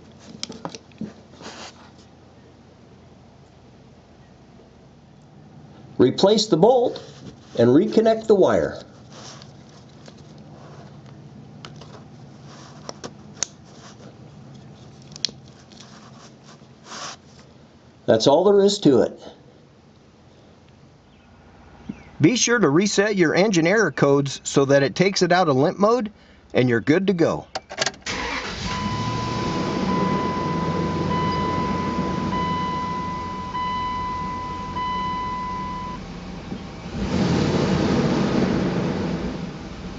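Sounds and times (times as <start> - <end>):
car engine idling: 28.1 - 39.9
dashboard warning chime beeping: 28.2 - 36.1
steady low hum: 28.8 - 39.9.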